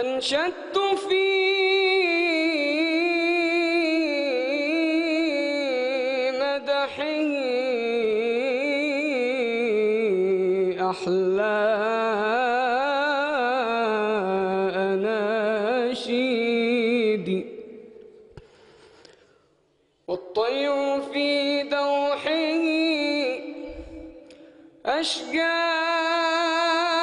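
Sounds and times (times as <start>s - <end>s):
man singing unaccompanied: 0.0s - 18.0s, 20.1s - 27.0s
man breathing in: 18.3s - 19.9s, 23.6s - 24.8s.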